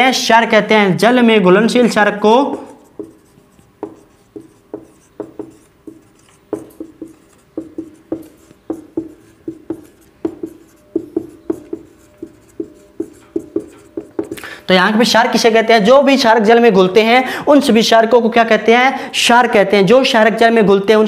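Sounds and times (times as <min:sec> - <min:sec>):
marker pen tapping on whiteboard: 0:02.5 - 0:14.5.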